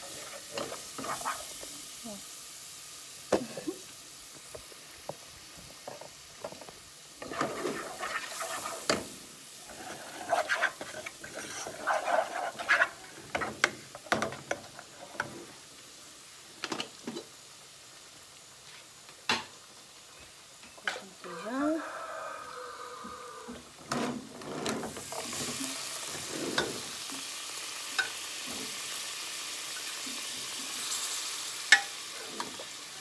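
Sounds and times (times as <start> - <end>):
faint sizzle: 0.0 - 33.0
wooden spoons scraping pots: 9.6 - 13.7.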